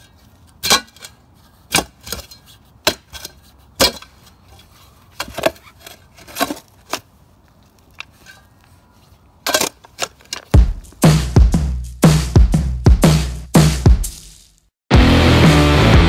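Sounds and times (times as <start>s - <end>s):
shovel chopping into soil: 0.5s - 4.1s.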